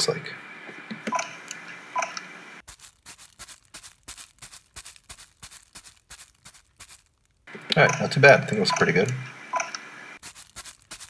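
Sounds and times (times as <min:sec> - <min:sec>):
plastic bag crunching rustles: 0:02.6 - 0:07.5, 0:10.2 - 0:11.0.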